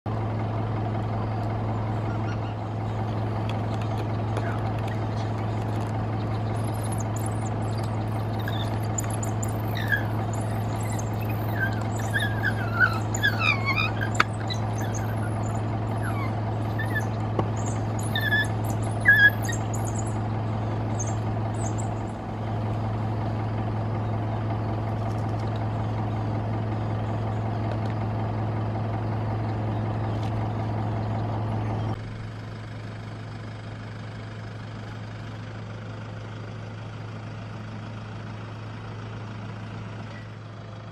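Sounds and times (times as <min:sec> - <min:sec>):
vehicle engine idling: 0:00.1 - 0:40.9
short high chirping calls: 0:06.1 - 0:20.2, 0:20.8 - 0:22.2.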